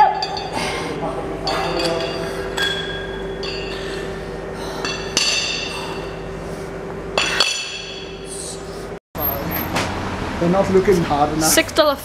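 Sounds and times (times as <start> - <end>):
metal weight plates clinking: 0.0 - 0.8, 1.4 - 4.1.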